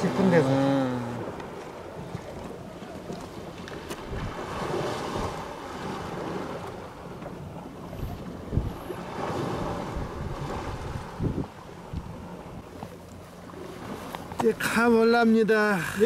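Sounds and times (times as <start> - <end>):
small waves on rocky shore: 0.0 - 16.0
wind buffeting microphone: 1.2 - 13.0.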